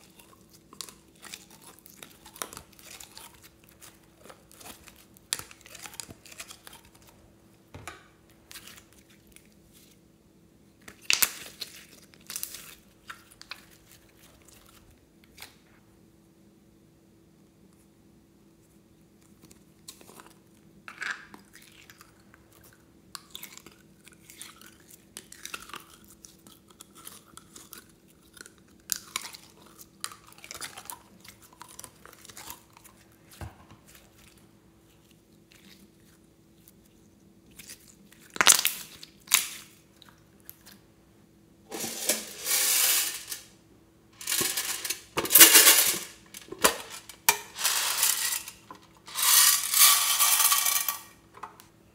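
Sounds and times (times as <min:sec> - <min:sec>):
slime squelching: 0:00.0 - 0:07.3, 0:29.3 - 0:40.9
metal tin box rattling: 0:44.2 - 0:46.1, 0:46.7 - 0:51.1.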